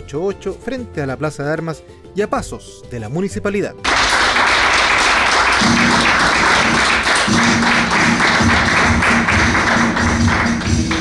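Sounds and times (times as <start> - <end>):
dance music with steady beat: 5.6 - 11.0.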